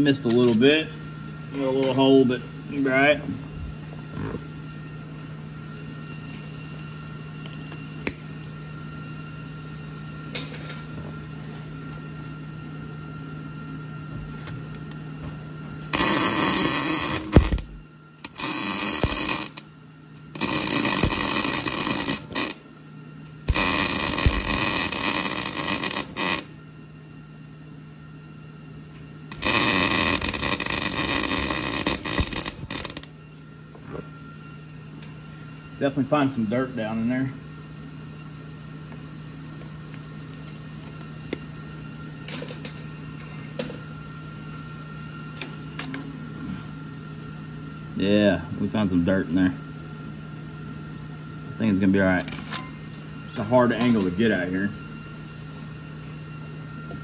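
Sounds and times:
steady low hum: 0:00.0 - 0:57.0
electric welding arc: 0:15.9 - 0:19.7, 0:20.3 - 0:22.6, 0:23.4 - 0:26.6, 0:29.3 - 0:33.2.

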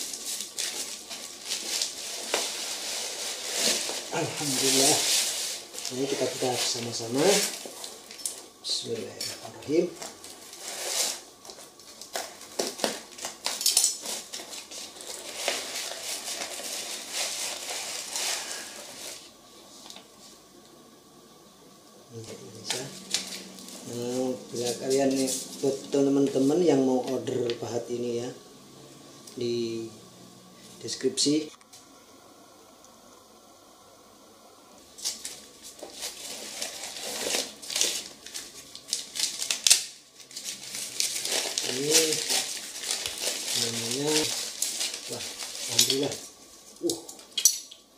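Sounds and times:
paper rustling: 0:00.0 - 0:19.3, 0:35.0 - 0:46.8.

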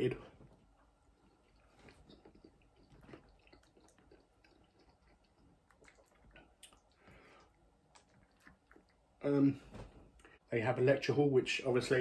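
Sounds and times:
quiet chewing: 0:00.4 - 0:09.2.

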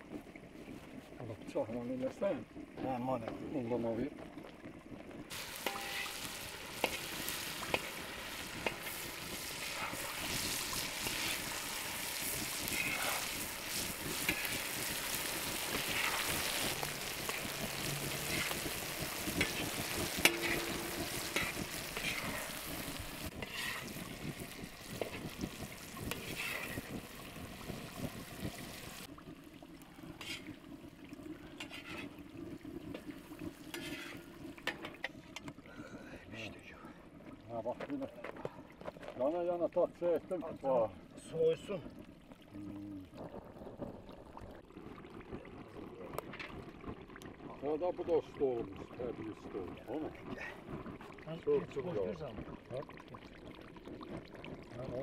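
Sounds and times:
clicks of stirring food: 0:05.3 - 0:28.6, 0:29.8 - 0:36.2
food sizzling in a wok: 0:05.3 - 0:29.1, 0:30.0 - 0:30.6, 0:31.4 - 0:35.1.

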